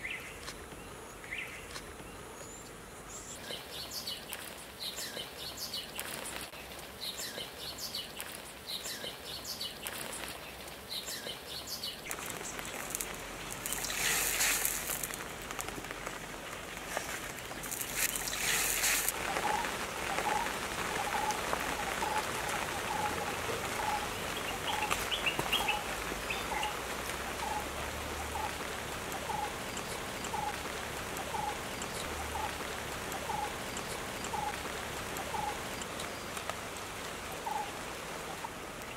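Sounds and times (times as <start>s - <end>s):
birds chirping: 0.0s - 38.9s
bursts of water noise: 12.0s - 38.9s
water hissing: 12.1s - 15.4s, 16.8s - 38.8s.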